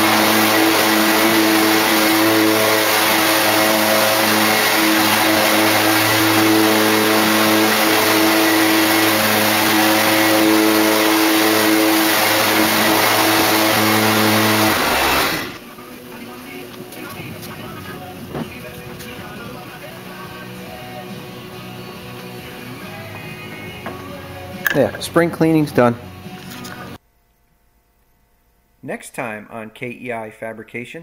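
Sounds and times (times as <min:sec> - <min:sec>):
leaf blower running: 0:00.0 - 0:15.6.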